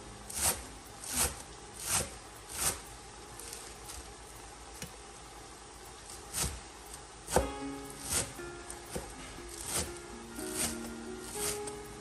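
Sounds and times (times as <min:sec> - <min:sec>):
knife slicing leaves on cutting board: 0:00.3 - 0:02.8, 0:06.1 - 0:06.6, 0:07.3 - 0:11.8.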